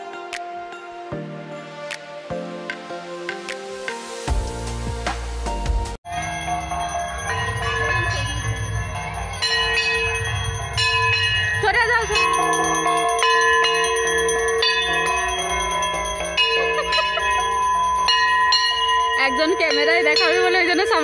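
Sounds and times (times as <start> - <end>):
bells ringing: 6.1 - 21.0.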